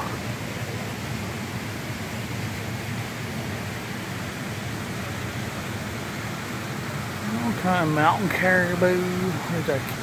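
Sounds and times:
store interior hiss and hum: 0.0s - 10.0s.

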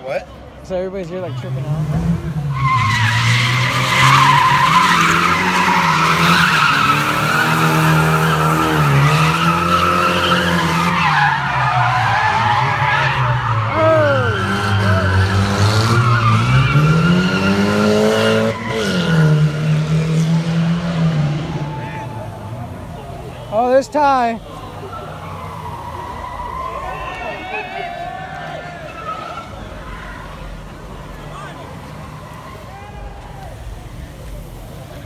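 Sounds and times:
car engine revving: 1.4s - 32.7s
tyres squealing: 2.5s - 20.0s, 21.5s - 34.0s.

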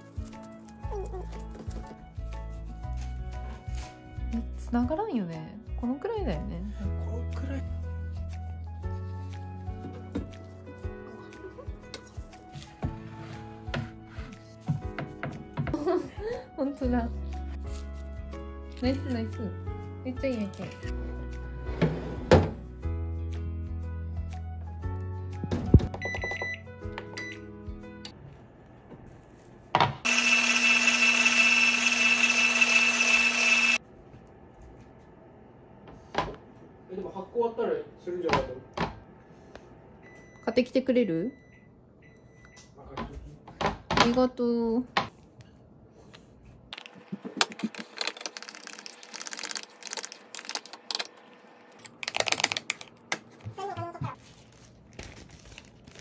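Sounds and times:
background music: 0.0s - 28.2s
electric hand mixer whisking: 30.1s - 33.8s.

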